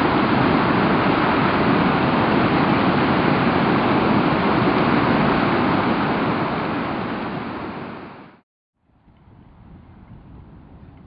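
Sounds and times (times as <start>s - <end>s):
waterfall rushing white water: 0.0s - 8.4s.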